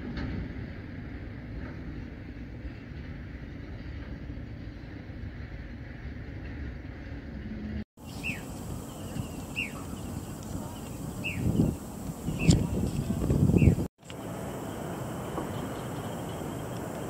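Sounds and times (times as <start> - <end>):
low outdoor rumble: 0.0 - 17.0
bird chirping: 8.0 - 12.8, 13.5 - 13.9, 14.6 - 17.0.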